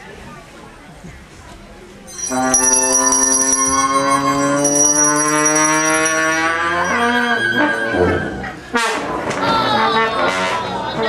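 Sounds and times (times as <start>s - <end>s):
bell ringing: 2.1s - 7.4s.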